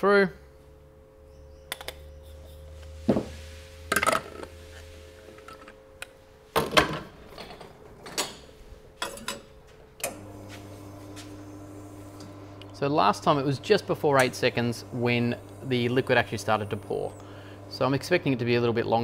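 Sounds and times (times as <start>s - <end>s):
espresso machine pump hum: 10.1s - 19.0s.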